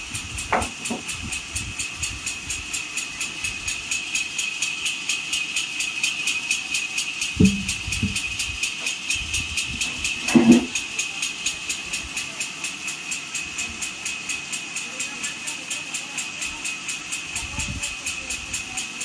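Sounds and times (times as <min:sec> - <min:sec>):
sawmill machinery ticking: 0:00.0 - 0:19.0
log thudding on ground: 0:07.4 - 0:07.7.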